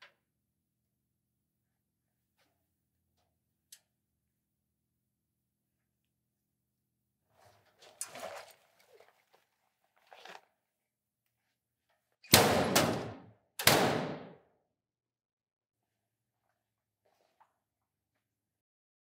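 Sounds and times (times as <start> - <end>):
loud sharp metal bangs: 12.3 - 14.3.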